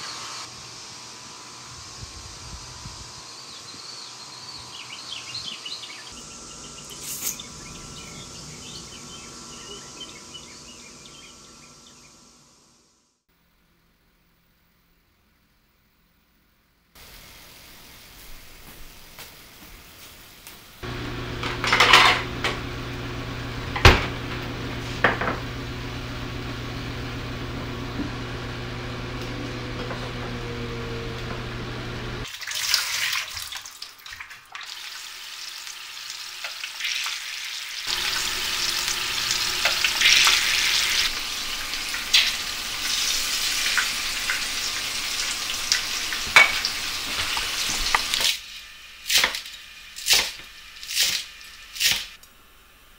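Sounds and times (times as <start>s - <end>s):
sizzling hiss: 0.0s - 4.9s, 17.0s - 21.4s, 34.7s - 52.9s
steady hum: 0.5s - 15.0s, 20.7s - 32.3s
utensils clinking on pots: 6.8s - 7.6s, 21.4s - 22.6s, 45.7s - 48.3s.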